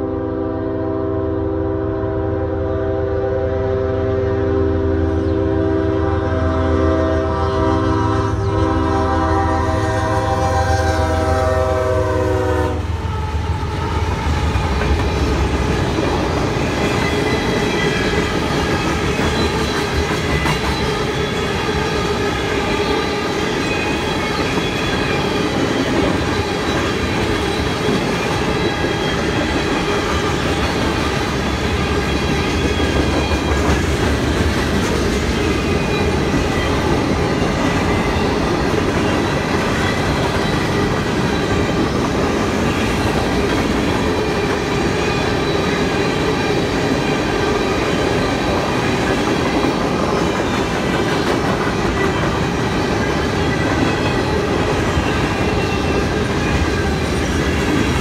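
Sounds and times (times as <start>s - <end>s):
train air horn blast: 0.0s - 14.0s
train wheels clattering: 14.1s - 58.0s.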